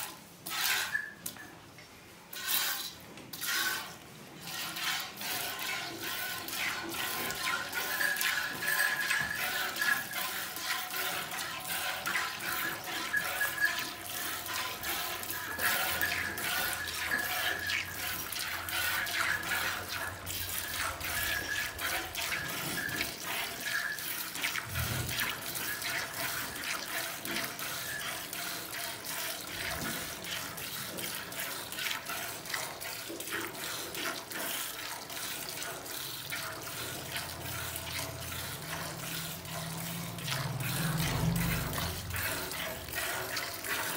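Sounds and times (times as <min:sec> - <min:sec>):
milk squirting into pail: 0:02.3 - 0:43.9.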